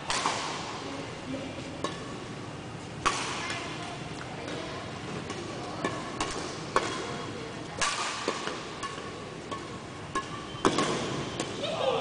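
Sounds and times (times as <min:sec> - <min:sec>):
rackets striking shuttlecock: 0:00.0 - 0:00.8, 0:03.0 - 0:03.7, 0:04.4 - 0:11.6
faint distant racket hits: 0:07.8 - 0:11.6.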